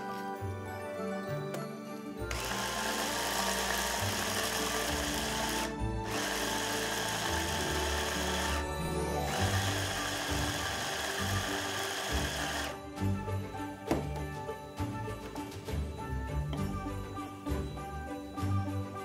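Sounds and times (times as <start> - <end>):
hand blender grinding nuts: 2.3 - 12.8.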